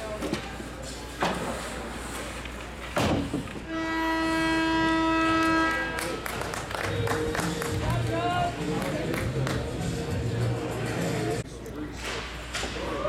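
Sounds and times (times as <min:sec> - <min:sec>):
horn blast: 0:03.6 - 0:07.9.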